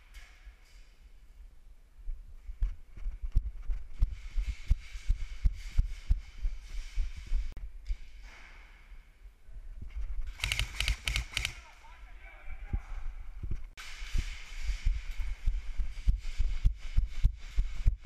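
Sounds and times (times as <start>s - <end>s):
rattle of sharp bursts: 10.3s - 11.6s.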